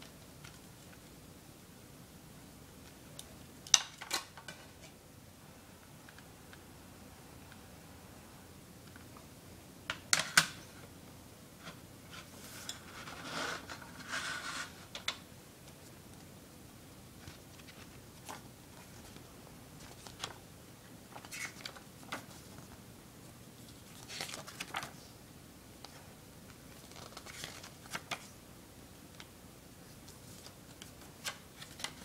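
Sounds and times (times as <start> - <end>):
pages rustling: 17.2 - 20.4, 21.0 - 22.8, 23.6 - 25.0, 26.6 - 28.4, 29.9 - 32.0
paper booklet sliding and rustling: 23.6 - 25.0.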